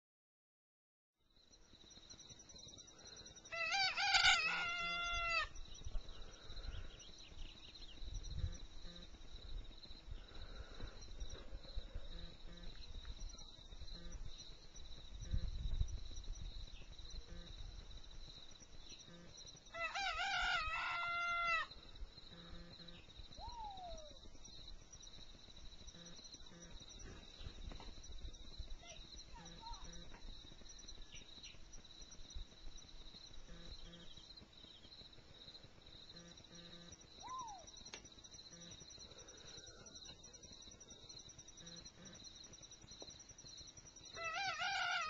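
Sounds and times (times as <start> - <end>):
rooster crowing: 3.5 - 5.5, 19.7 - 21.7, 44.2 - 45.0.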